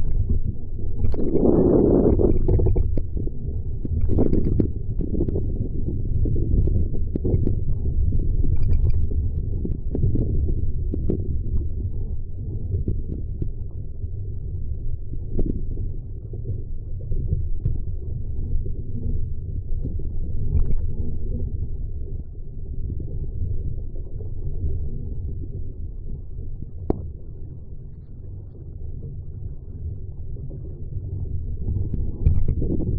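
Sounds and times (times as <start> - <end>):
wind buffeting the microphone: 0.0 - 8.5, 31.6 - 32.9.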